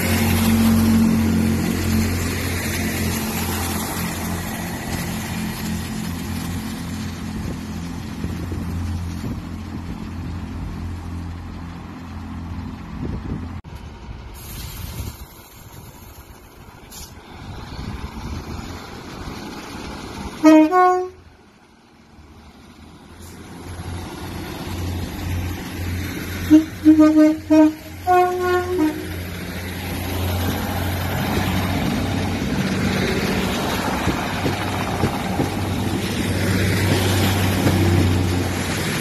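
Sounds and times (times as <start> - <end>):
diesel train engine drone: 0.0 - 39.0
two-tone train horn: 20.4 - 21.2, 26.4 - 29.1.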